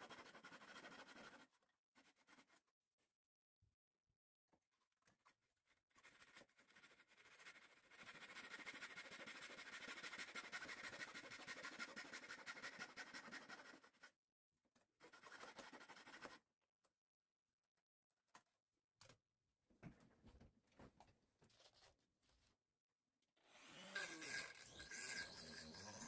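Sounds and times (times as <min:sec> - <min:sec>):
hand saw cutting wood: 0:08.1 - 0:13.8, 0:23.5 - 0:26.0.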